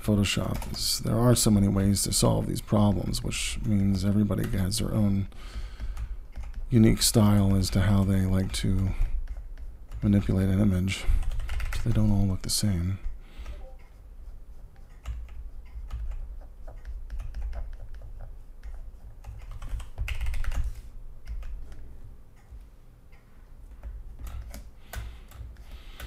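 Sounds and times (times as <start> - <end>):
computer keyboard typing: 0.2 - 1.0, 5.6 - 12.7, 13.3 - 22.6, 23.7 - 26.0.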